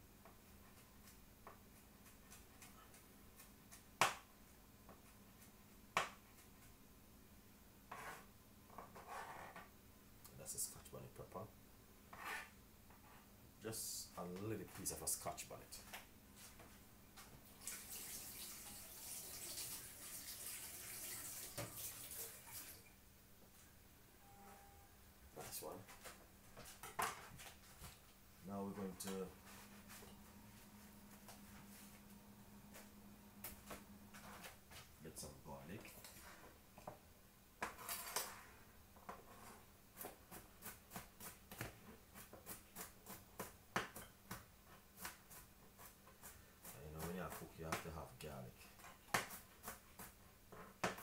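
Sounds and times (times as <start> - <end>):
water running from tap: 17.6 - 22.9
knife chopping on cutting board: 49.1 - 50.2.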